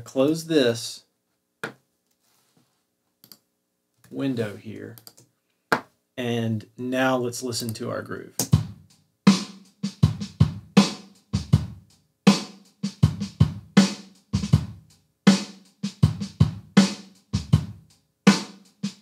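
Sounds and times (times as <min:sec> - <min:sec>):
snare drum: 0:08.4 - 0:11.7, 0:12.3 - 0:14.7, 0:18.3 - 0:19.0.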